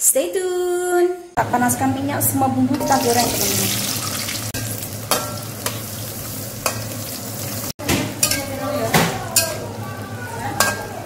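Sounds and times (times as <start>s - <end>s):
food sizzling in hot oil: 2.8s - 9.8s.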